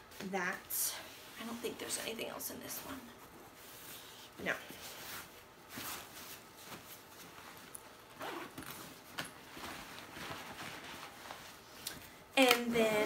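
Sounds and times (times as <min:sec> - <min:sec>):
fabric bag rustling: 0:04.8 - 0:11.8.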